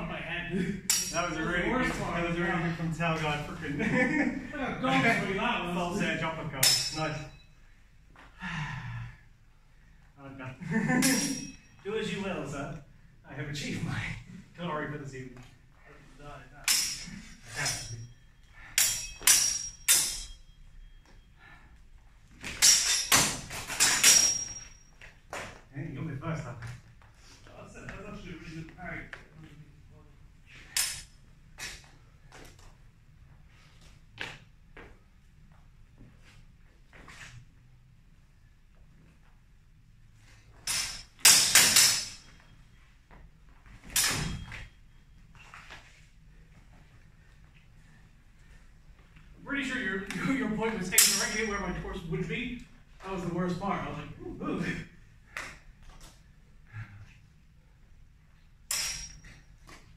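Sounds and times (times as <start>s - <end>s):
sword blades clashing: 0.9s - 2.1s, 6.6s - 7.4s, 10.9s - 11.8s, 16.6s - 20.6s, 22.4s - 24.8s, 30.6s - 31.8s, 40.7s - 42.4s, 43.8s - 44.7s, 50.9s - 51.8s, 58.7s - 59.5s.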